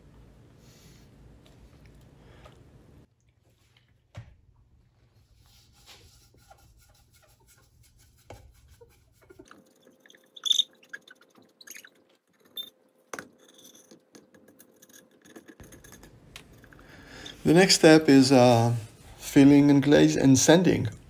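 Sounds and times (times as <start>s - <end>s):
plate clicks and scrapes: 13.2s - 16.8s.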